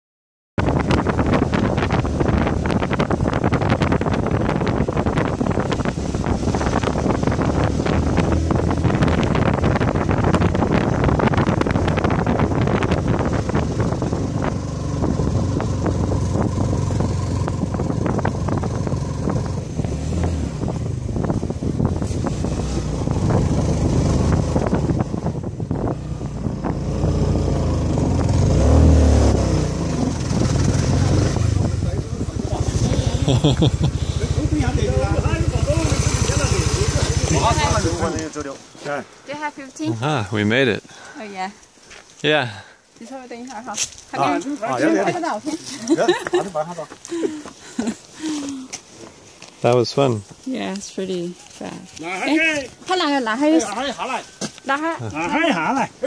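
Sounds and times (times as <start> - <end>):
motorcycle engine running: 0.6 - 38.5
wind buffeting microphone: 0.6 - 38.5.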